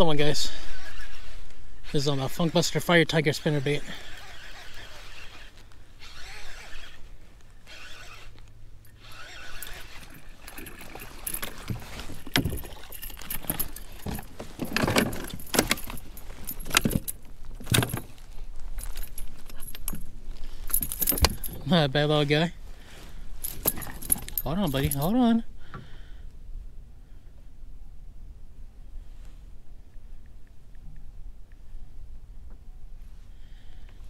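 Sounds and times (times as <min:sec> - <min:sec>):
wind and water: 0:08.9 - 0:21.6
knocks and metallic rattling: 0:09.0 - 0:18.1
fish thrashing and splashing: 0:09.1 - 0:16.0.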